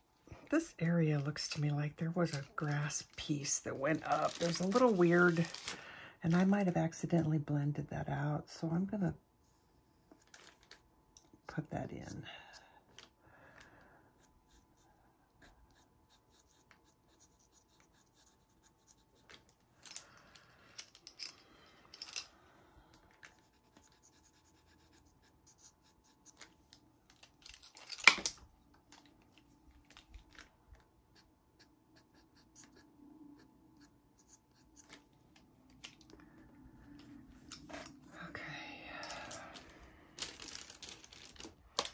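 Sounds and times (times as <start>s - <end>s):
pencil scratching on card: 14.2s - 19.4s, 23.3s - 26.5s, 31.1s - 35.0s.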